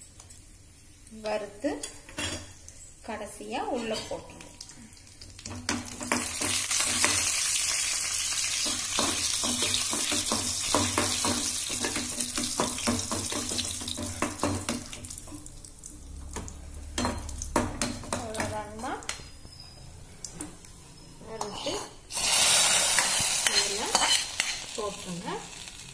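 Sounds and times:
nuts sizzling in hot ghee: 4.4s - 18.0s, 21.5s - 25.9s
metal spoon scraping a pan: 21.3s - 25.2s.

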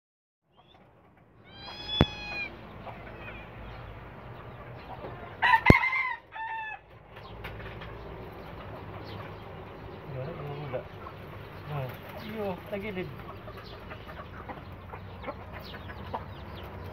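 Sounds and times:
rooster crowing: 1.5s - 2.5s, 5.3s - 6.9s.

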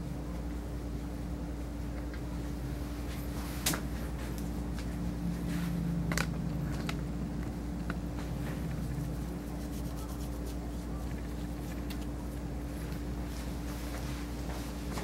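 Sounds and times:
low room hum: 0.0s - 15.0s
hands rustling through fur: 8.4s - 11.8s.

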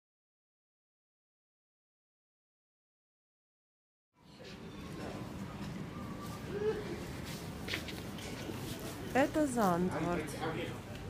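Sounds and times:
faint hiss of pedestrian street: 4.2s - 11.0s
low street rumble: 4.2s - 11.0s.

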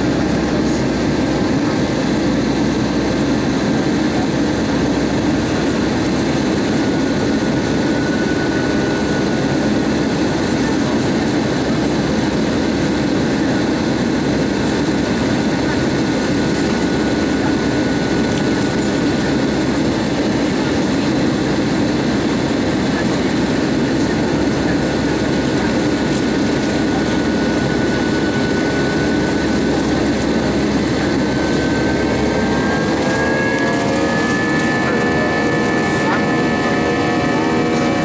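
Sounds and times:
jet engine cabin roar: 0.0s - 38.0s
rising whine: 26.0s - 38.0s.

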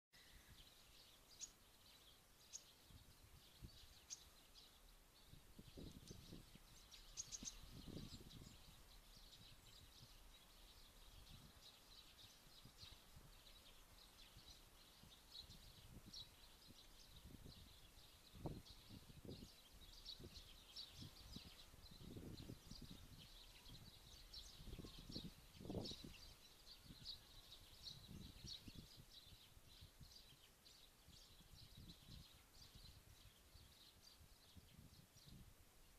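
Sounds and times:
small songbirds chirping: 0.1s - 35.9s.

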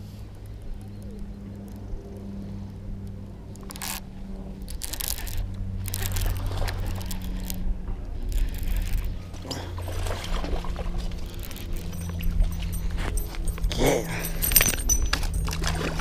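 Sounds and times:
steady low hum: 0.0s - 16.0s
fishing reel cranking: 3.6s - 16.0s.

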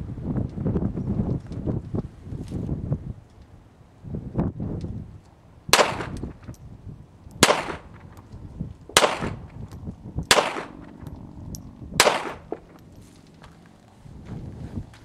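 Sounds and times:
pistol shots with echo: 5.7s - 6.2s, 7.4s - 8.1s, 8.9s - 9.6s, 10.2s - 11.1s, 12.0s - 12.8s.

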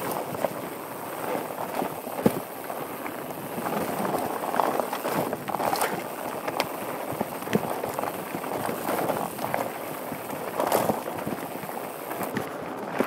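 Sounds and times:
bike rattling: 0.0s - 13.0s
bike tyres rolling over stones: 0.0s - 13.0s
wind noise: 0.0s - 13.0s.

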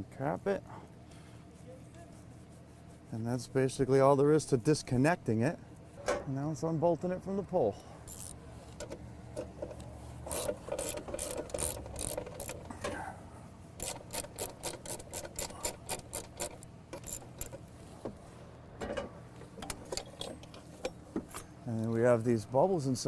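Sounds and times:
ratchet wrench clicking: 8.1s - 12.7s, 13.8s - 17.6s.

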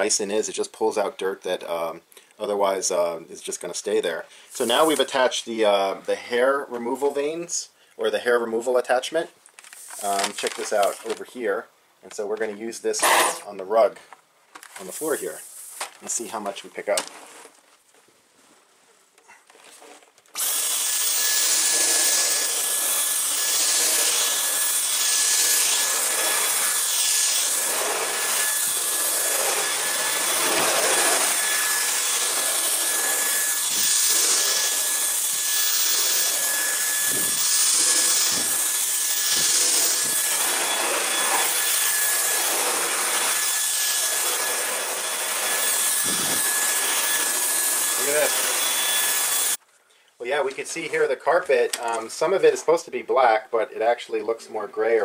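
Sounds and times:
vacuum cleaner high-pitched whine: 20.4s - 49.6s.

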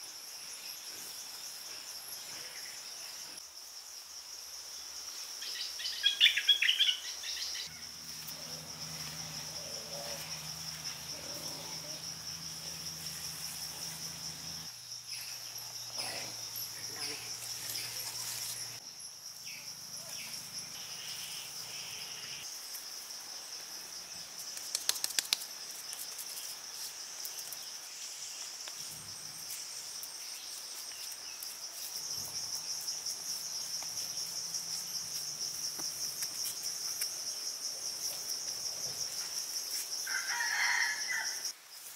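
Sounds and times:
crickets droning: 0.0s - 41.9s
sharp insect chirps: 0.0s - 41.9s
quick run of clicks: 24.6s - 25.5s.

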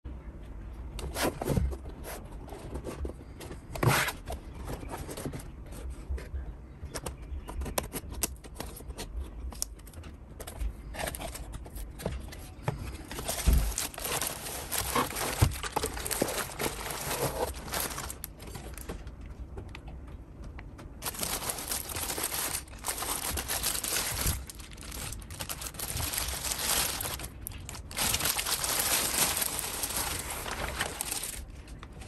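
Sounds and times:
plastic bag rustling: 12.8s - 19.1s, 21.0s - 32.0s
cardboard box being opened: 13.0s - 18.8s, 21.0s - 31.5s.

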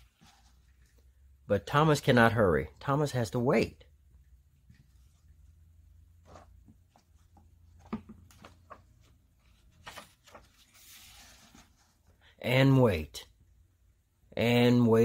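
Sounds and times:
gloved hands handling book: 0.0s - 1.1s, 6.2s - 12.1s
paper page turning: 7.8s - 12.0s.

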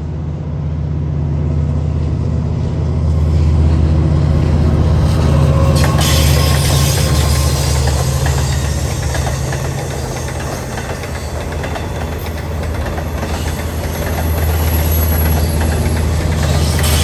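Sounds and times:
low diesel engine drone: 0.0s - 10.8s
train wheel and rail noise: 0.0s - 17.0s.

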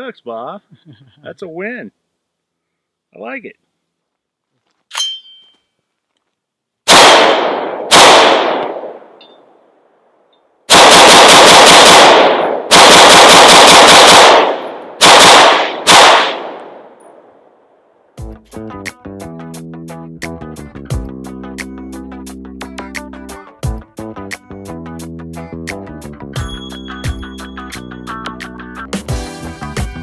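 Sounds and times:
rifle gunshots with echo: 6.9s - 9.2s, 10.7s - 17.4s.

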